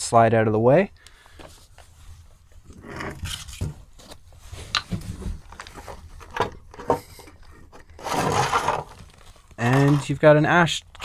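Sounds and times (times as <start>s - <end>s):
rock scraping: 7.9s - 10.4s.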